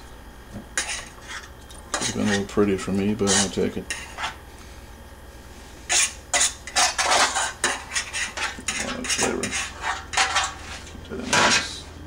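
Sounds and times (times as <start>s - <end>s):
metal utensil clanking on pans: 5.9s - 10.6s.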